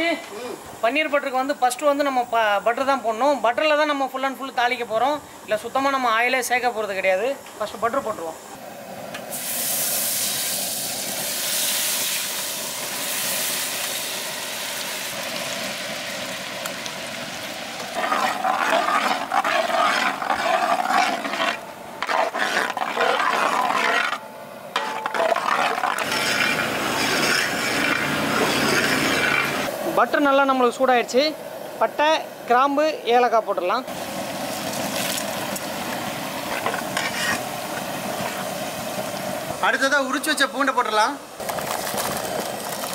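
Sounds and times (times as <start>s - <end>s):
butter sizzling in a pan: 9.3s - 24.2s, 24.8s - 29.7s
metal ladle scraping a pan: 17.8s - 24.2s, 24.8s - 29.7s, 36.5s - 37.5s.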